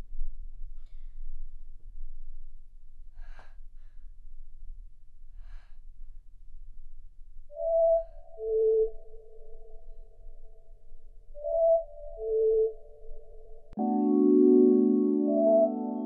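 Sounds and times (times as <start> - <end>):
held musical note: 13.8 - 16.0.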